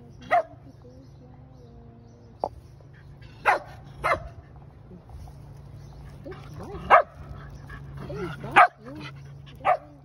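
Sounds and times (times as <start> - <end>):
dog barking: 0.3 - 0.6, 3.4 - 4.4, 6.9 - 7.1, 8.5 - 8.8.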